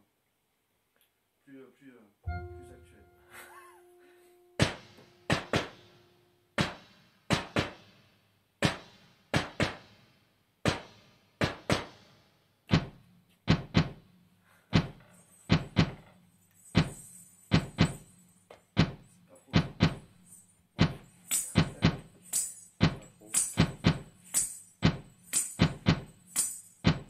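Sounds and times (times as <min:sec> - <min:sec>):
faint low hum: 0:01.4 - 0:06.5
percussion knocks: 0:02.3 - 0:03.5, 0:04.6 - 0:06.0, 0:12.7 - 0:14.0, 0:14.7 - 0:27.0.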